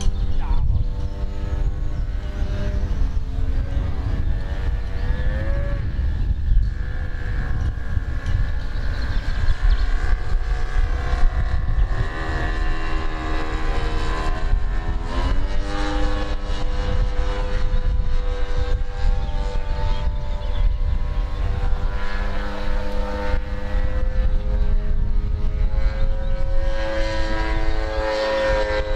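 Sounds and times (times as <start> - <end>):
model plane engine buzzing: 0.0 - 28.9.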